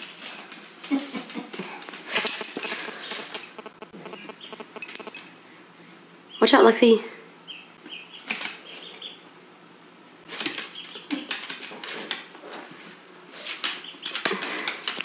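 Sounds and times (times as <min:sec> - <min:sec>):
duckling peeping: 0:04.0 - 0:05.1, 0:07.5 - 0:09.2.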